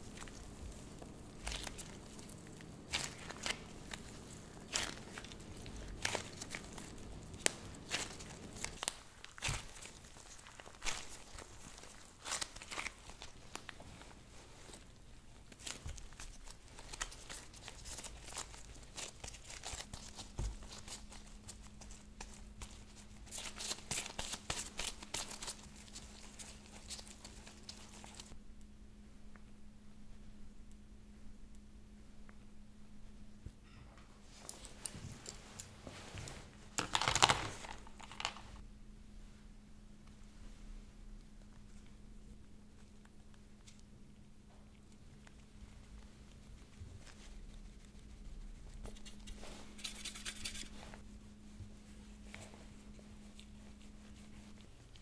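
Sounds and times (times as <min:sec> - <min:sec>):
clay crackling and tearing: 0:00.0 - 0:13.8, 0:15.4 - 0:28.4
plastic crinkling: 0:00.0 - 0:28.4, 0:34.4 - 0:38.6.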